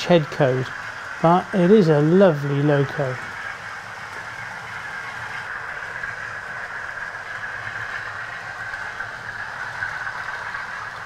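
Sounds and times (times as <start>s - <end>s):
diesel engine sound from speaker: 0.0s - 3.4s
model train wheels and motors: 0.0s - 11.0s.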